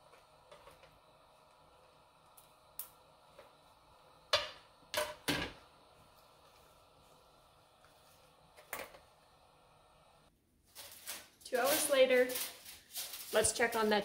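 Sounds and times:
plastic bags clicking and crinkling: 10.7s - 14.0s.

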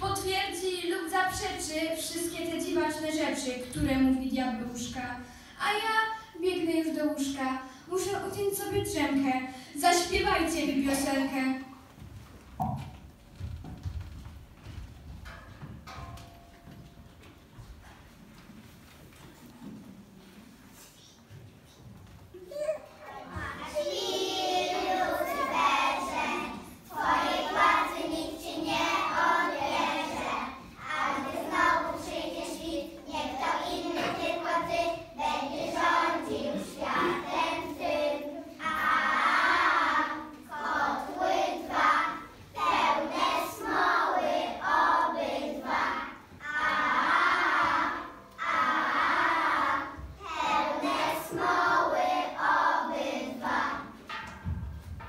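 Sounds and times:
children singing: 23.1s - 54.0s.

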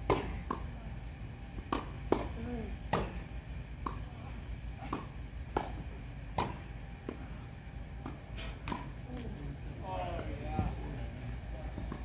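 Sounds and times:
low steady rumble: 0.0s - 12.0s
tennis ball pops: 4.9s - 6.6s.

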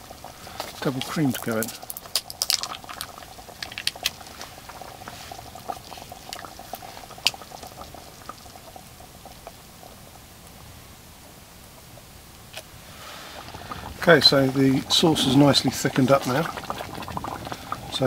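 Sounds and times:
thick sauce bubbling and popping: 0.0s - 10.6s, 11.2s - 18.0s.

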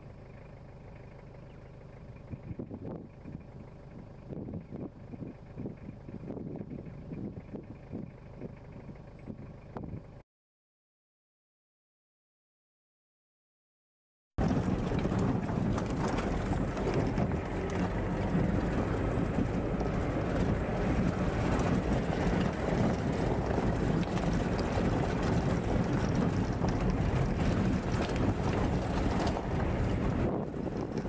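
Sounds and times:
wind buffeting microphone: 2.3s - 3.5s, 4.3s - 10.1s, 14.4s - 31.0s.

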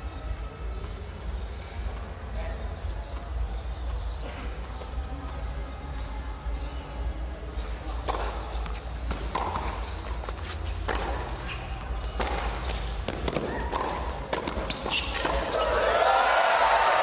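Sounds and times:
ball bouncing: 8.0s - 15.6s
rackets hitting tennis ball: 8.0s - 15.9s
footsteps on court: 8.1s - 15.8s.

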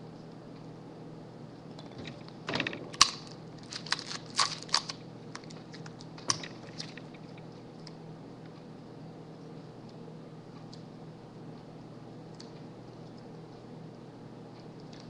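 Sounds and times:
sticky tape pulled and torn: 3.1s - 5.0s
plastic straws crackling: 3.1s - 5.9s.

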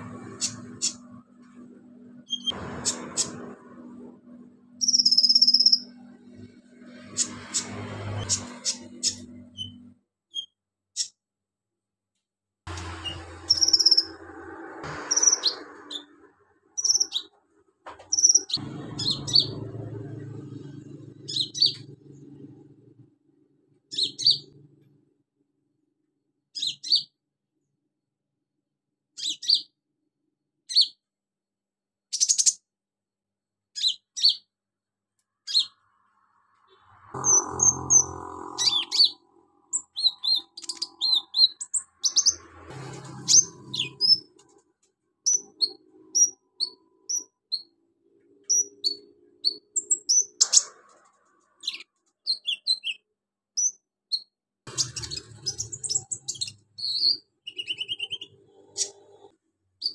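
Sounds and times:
lower rough sounds: 0.0s - 9.9s, 12.7s - 17.1s, 18.4s - 23.6s, 35.7s - 44.7s
bird chirping and trilling: 0.1s - 1.1s, 2.2s - 3.6s, 4.8s - 11.2s, 12.8s - 14.3s, 15.0s - 16.2s, 16.8s - 17.3s, 18.1s - 22.6s, 23.9s - 24.6s, 26.6s - 27.1s, 29.2s - 29.7s, 30.7s - 31.0s, 32.1s - 32.6s, 33.8s - 34.5s, 35.4s - 42.4s, 43.1s - 44.3s, 45.3s - 47.7s, 48.5s - 50.9s, 51.5s - 53.0s, 53.6s - 59.9s.

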